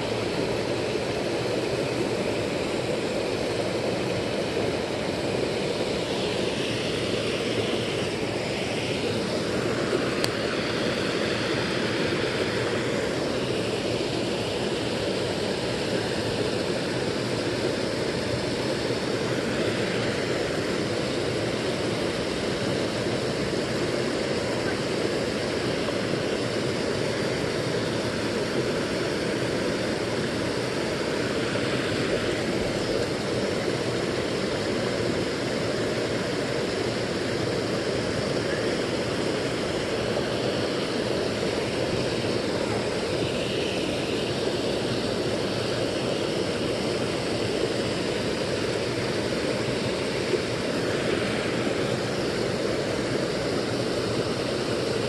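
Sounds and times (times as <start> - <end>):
creek water rushing over rocks: 0.0 - 55.0.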